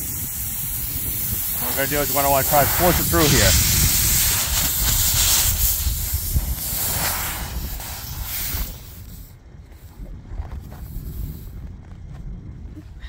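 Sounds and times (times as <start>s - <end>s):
air hissing out of tire: 0.0s - 10.0s
wind rumbling on microphone: 0.0s - 13.0s.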